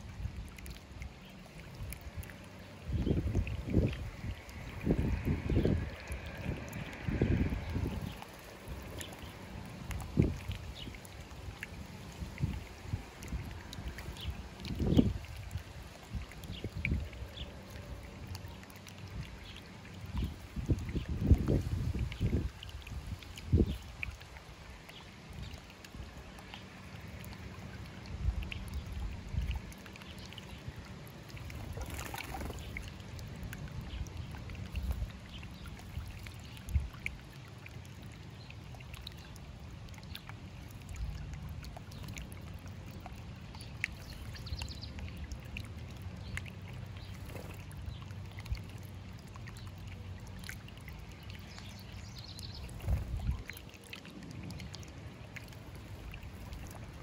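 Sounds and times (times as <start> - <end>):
fountain water trickling and splashing: 0.0 - 57.0.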